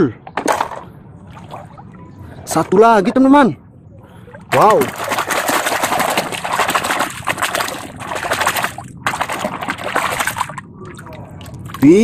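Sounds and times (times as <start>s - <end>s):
muddy water splashing: 4.2s - 12.0s.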